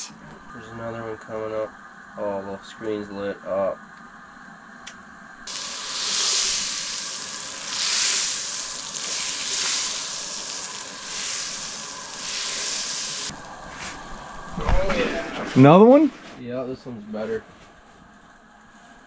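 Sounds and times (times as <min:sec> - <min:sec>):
butter sizzling in frying pan: 0:05.5 - 0:13.5.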